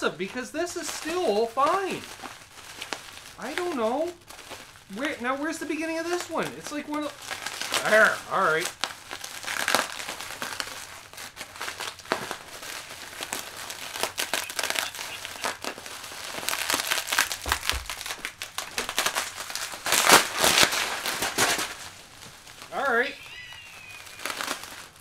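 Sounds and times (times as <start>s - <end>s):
bubble wrap crinkling: 0.0s - 25.0s.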